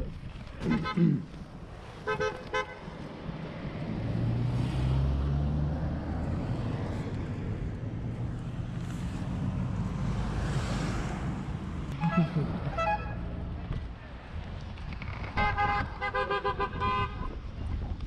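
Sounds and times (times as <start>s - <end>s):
road traffic noise: 0.0s - 18.0s
horn toots: 0.6s - 1.3s, 2.0s - 2.8s, 11.9s - 13.4s, 15.4s - 17.4s
passing vehicle engine: 2.9s - 13.8s.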